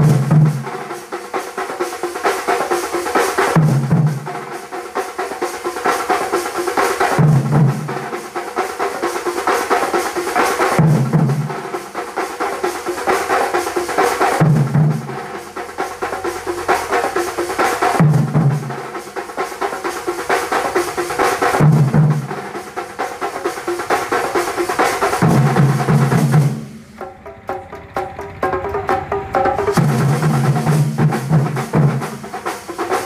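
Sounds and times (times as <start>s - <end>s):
drum band playing fast rhythm: 0.0s - 33.0s
deep low drum beat: 23.7s - 32.4s.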